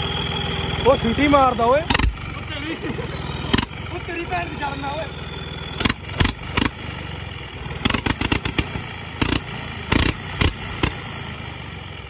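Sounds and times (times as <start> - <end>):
high exhaust whistle: 0.0 - 7.9
sharp exhaust puffs: 0.0 - 12.0
tractor engine running: 0.0 - 12.0.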